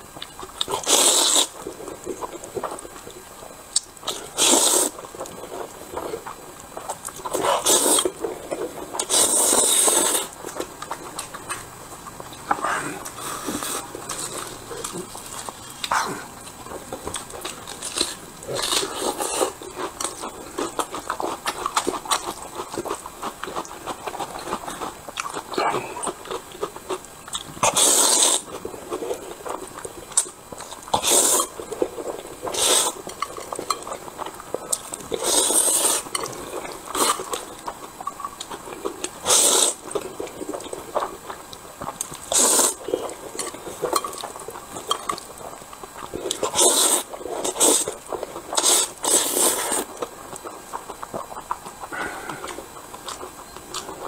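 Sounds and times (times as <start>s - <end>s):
person chewing: 0.1s - 54.0s
loud noodle slurps: 0.8s - 1.6s, 4.4s - 5.0s, 7.4s - 8.1s, 9.0s - 10.4s, 27.6s - 28.5s, 31.0s - 31.5s, 32.5s - 33.0s, 35.2s - 36.1s, 39.2s - 39.8s, 42.3s - 42.8s, 46.4s - 48.0s, 48.6s - 49.9s.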